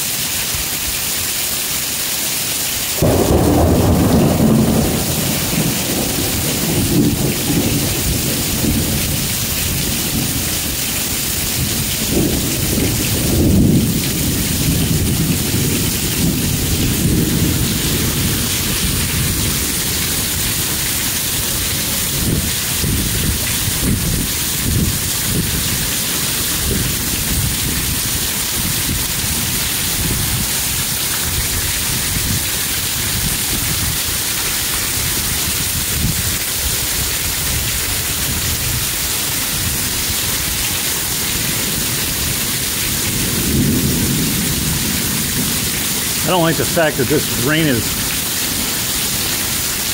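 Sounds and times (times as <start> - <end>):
heavy rain pouring: 0.0 - 49.9
low thunder rumble: 3.0 - 20.7, 41.6 - 46.8.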